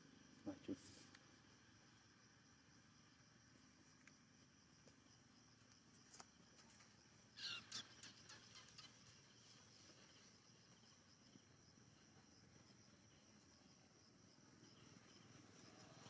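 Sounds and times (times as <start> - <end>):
high insect drone: 0.0 - 16.0
high squeaky chirps: 7.4 - 9.1.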